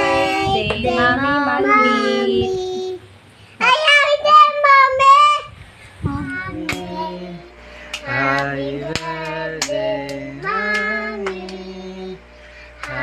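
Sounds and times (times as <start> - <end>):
child singing: 0.0 - 3.0, 3.6 - 12.2
sharp claps: 6.7 - 6.9, 7.9 - 11.7, 12.8 - 13.0.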